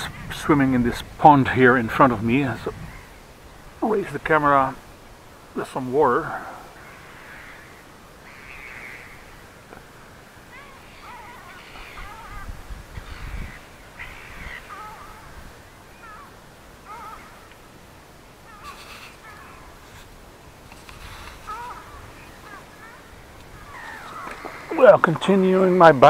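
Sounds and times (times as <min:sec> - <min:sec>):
crows cawing: 0:06.2 - 0:17.8, 0:18.4 - 0:20.1, 0:20.8 - 0:25.8.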